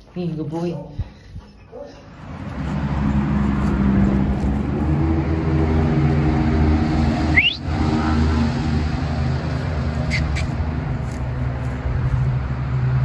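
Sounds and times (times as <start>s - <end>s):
low engine hum: 2.0s - 13.0s
short rising chirp: 7.3s - 7.7s.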